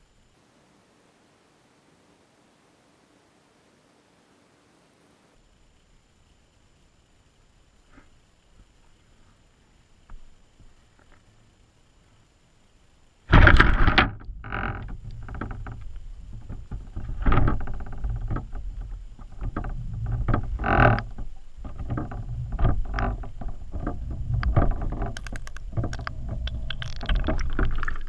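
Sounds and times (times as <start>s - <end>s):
sudden loud jolt: 13.3s - 14.1s
rumbling and bumping: 13.3s - 28.0s.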